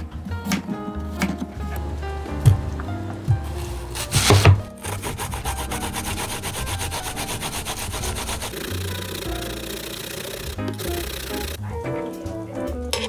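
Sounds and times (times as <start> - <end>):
background music: 0.0 - 13.0
fast rasping strokes: 3.8 - 11.6.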